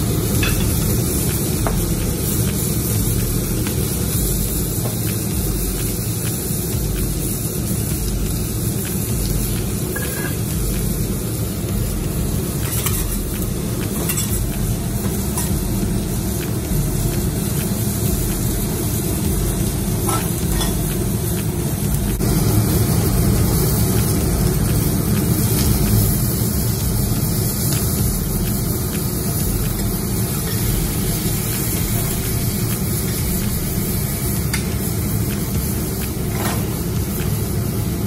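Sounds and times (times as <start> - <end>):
steady low rumble: 0.0 - 37.6
seafood sizzling on griddle: 0.0 - 38.0.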